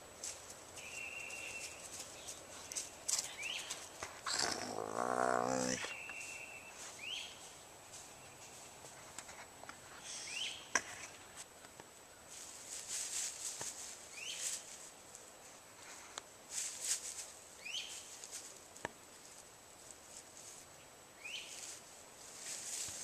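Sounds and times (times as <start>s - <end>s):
bird chirping: 0.8s - 8.6s, 10.0s - 10.7s
coyote crunching on treat: 2.2s - 5.8s.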